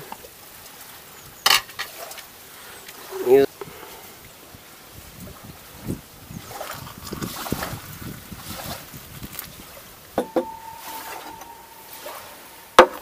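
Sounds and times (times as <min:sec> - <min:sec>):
crockery clinking on table: 0:10.2 - 0:13.0.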